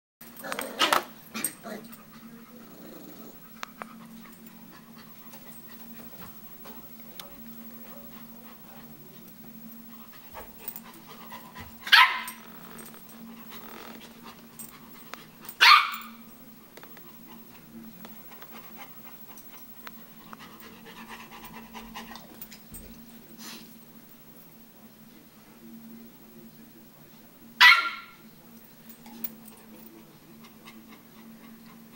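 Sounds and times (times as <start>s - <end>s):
dog panting: 9.9s - 11.8s, 17.0s - 22.6s, 30.3s - 31.9s.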